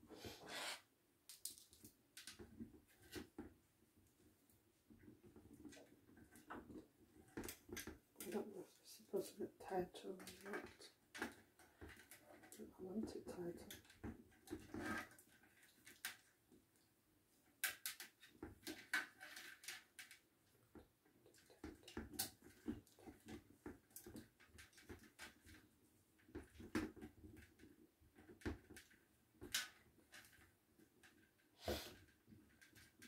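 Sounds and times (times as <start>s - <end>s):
plastic parts clicking and tapping: 1.3s - 3.6s, 17.6s - 31.4s.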